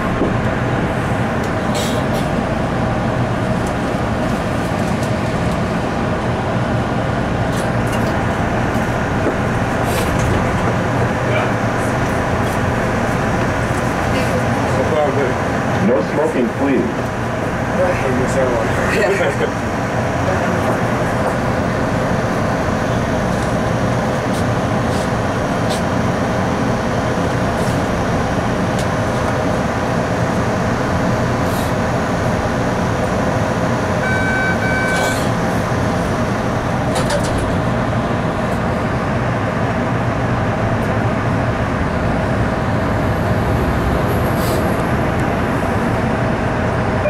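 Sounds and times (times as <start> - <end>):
subway car interior rumble: 0.0 - 47.0
two-tone electronic beep: 34.0 - 35.1.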